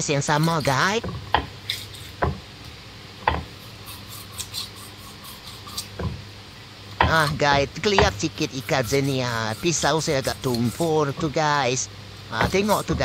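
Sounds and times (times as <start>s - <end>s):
blade scraping fish scales: 0.2s - 2.2s, 3.5s - 6.1s, 7.1s - 13.0s
knife knocking on fish: 3.2s - 3.5s.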